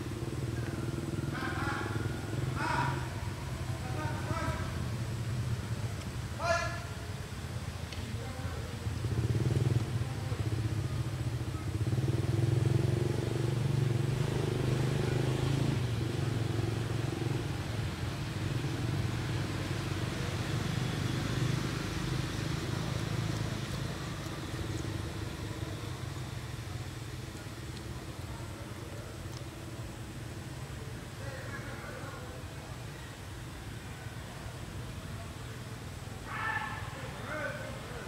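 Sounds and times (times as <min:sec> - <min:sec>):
vehicle engine running: 0:08.7 - 0:31.2.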